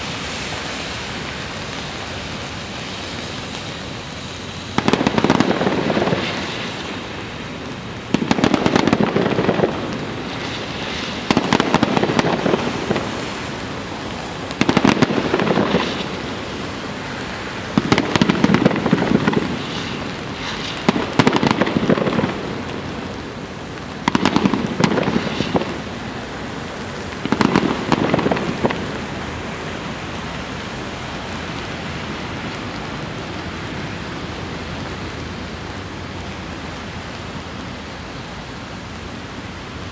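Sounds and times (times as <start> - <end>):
steady hiss: 0.0 - 39.9
fireworks crackling bangs: 3.7 - 30.4.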